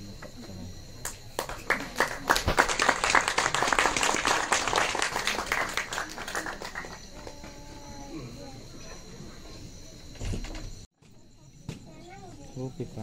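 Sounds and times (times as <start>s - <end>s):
audience applauding: 1.0s - 7.6s.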